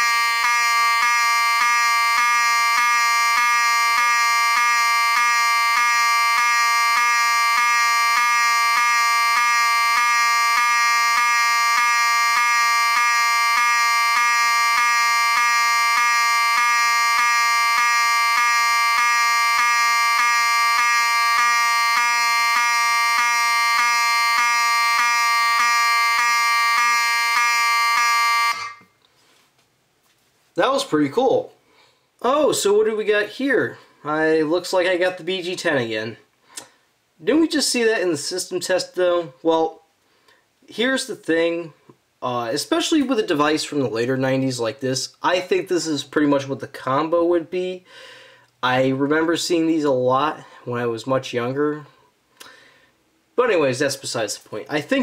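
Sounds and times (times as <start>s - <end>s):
electromechanical horn buzzing: 0.0s - 28.9s.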